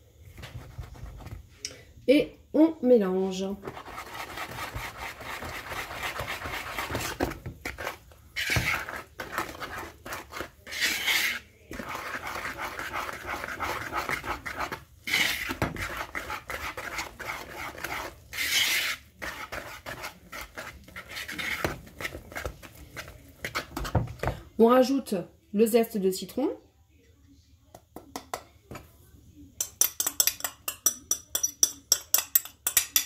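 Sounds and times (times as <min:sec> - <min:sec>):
whisk scraping in plastic bowl: 0:00.2 - 0:01.4, 0:03.6 - 0:24.4.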